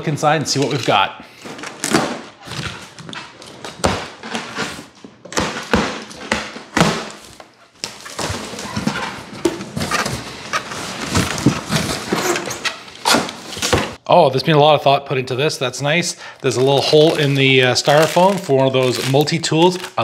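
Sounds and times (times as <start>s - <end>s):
packing rustling: 7.1s - 14.0s, 16.4s - 20.0s.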